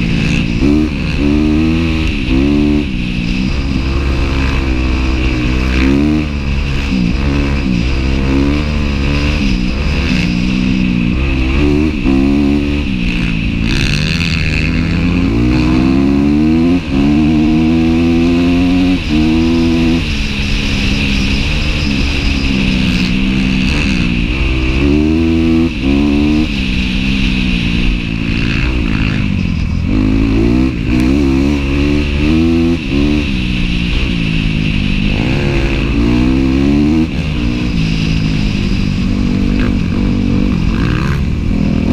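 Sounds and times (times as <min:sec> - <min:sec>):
dirt bike engine revving: 0:00.0 - 0:41.9.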